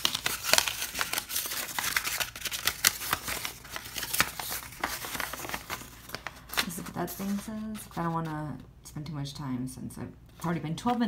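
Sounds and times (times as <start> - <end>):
paper scroll rustling: 0.0 - 8.4.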